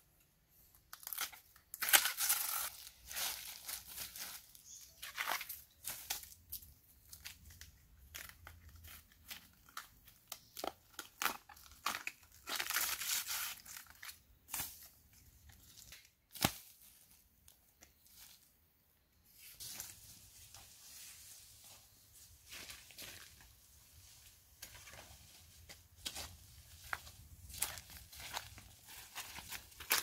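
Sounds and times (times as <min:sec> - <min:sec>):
banana stalk snapping and tearing: 0:00.9 - 0:02.7, 0:15.8 - 0:16.7.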